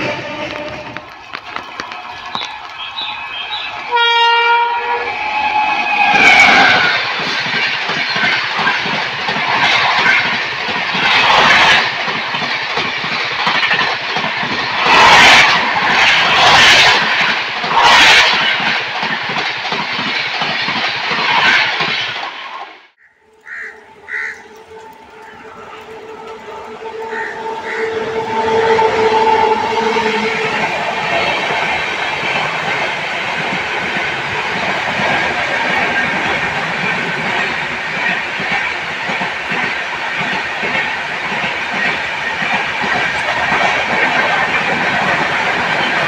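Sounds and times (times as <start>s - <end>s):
locomotive horn: 0.0s - 1.2s, 2.2s - 6.9s, 23.0s - 30.7s
train coaches rushing past: 0.0s - 46.0s.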